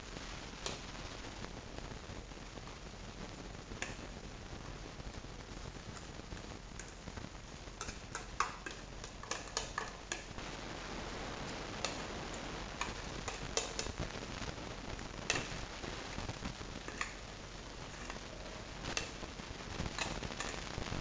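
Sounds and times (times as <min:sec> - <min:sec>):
spatula scraping and tapping plastic: 0:06.8 - 0:07.0, 0:07.8 - 0:10.4, 0:11.8 - 0:14.0, 0:16.8 - 0:17.2, 0:17.9 - 0:18.2, 0:19.9 - 0:20.6.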